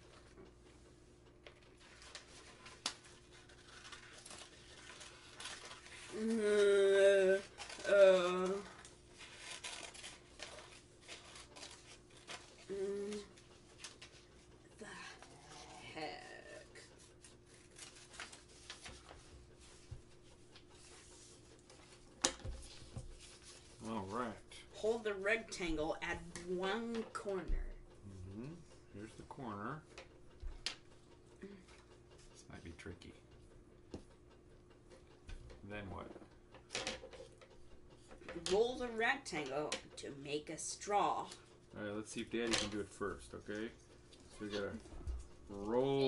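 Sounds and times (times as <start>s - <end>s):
low room hum: 0.0s - 46.0s
paper rustling: 1.5s - 6.4s, 7.2s - 14.5s, 17.1s - 24.4s
scissors snipping paper: 7.3s - 14.1s.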